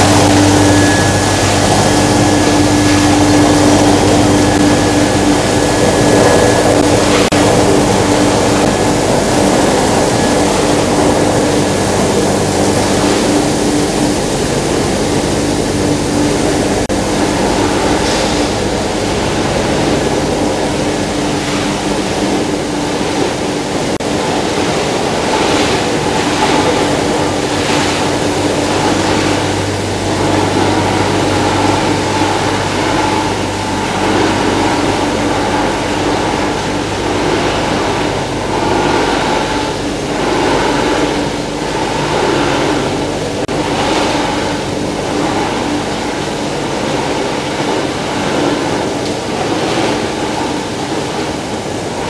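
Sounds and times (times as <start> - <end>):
constant low hum: 0.0 - 52.0
recycling machinery din: 0.0 - 52.0.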